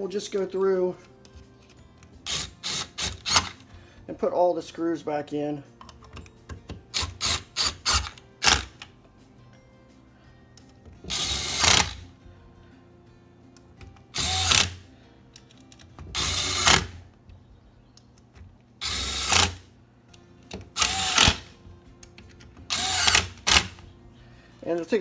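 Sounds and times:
power screwdriver driving screws: 2.2s - 3.6s, 6.9s - 8.9s, 11.1s - 12.0s, 14.1s - 14.8s, 16.1s - 17.0s, 18.8s - 19.6s, 20.7s - 21.5s, 22.7s - 23.8s.

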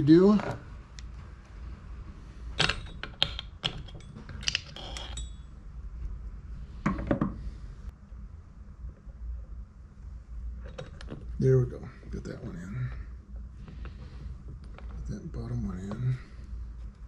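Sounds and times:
metal parts clicking: 2.6s - 5.4s.

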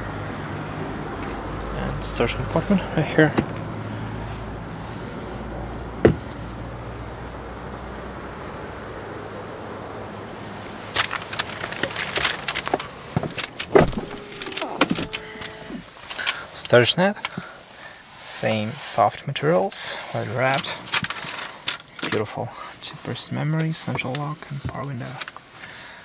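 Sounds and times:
car door trim clicks and knocks: 3.3s - 3.6s, 6.0s - 6.4s, 11.0s - 15.6s.

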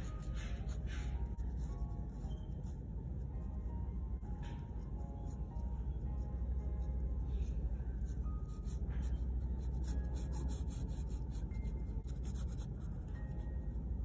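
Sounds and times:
pen nib scratching paper: 0.0s - 2.8s, 8.0s - 13.2s
low steady hum: 0.0s - 14.0s.

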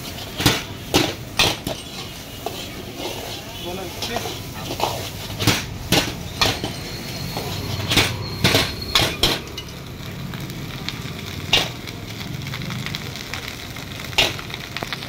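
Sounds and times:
frying sizzle: 0.0s - 15.0s
ladle clanking against wok: 0.1s - 9.8s.

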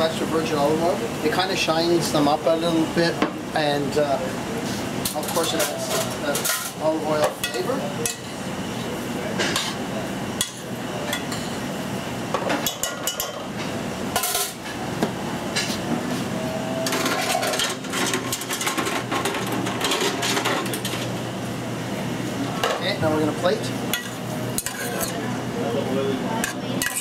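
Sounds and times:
pan and metal utensils clinking: 5.1s - 8.2s, 16.9s - 21.0s, 23.9s - 25.2s, 26.4s - 27.0s
steady low hum: 6.0s - 27.0s.

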